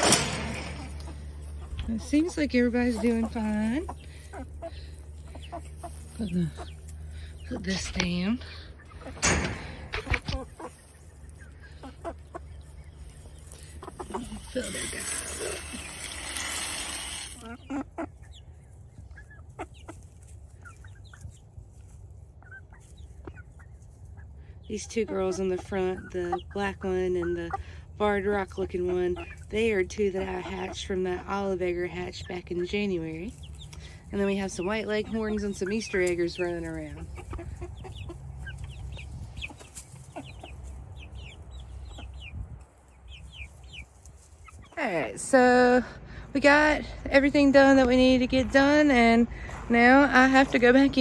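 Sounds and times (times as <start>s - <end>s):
hens clucking softly: 0.7s - 27.8s, 33.4s - 44.8s.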